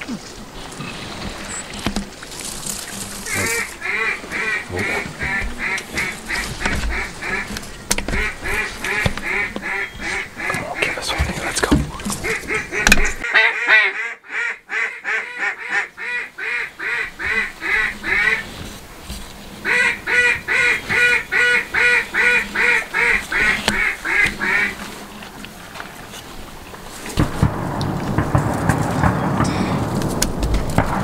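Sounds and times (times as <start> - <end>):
duck call quacks: 3.2 - 7.5, 8.1 - 10.8, 12.2 - 18.5, 19.6 - 24.8.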